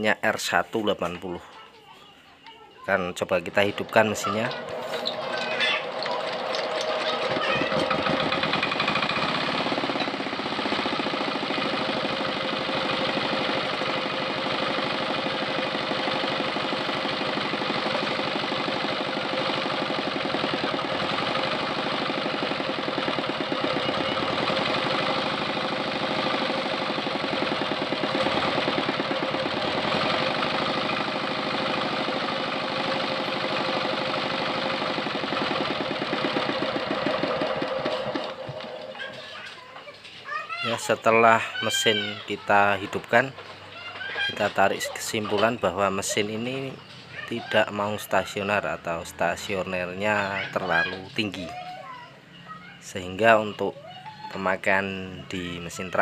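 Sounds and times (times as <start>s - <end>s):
diesel engine running fast: 4.6s - 39.1s.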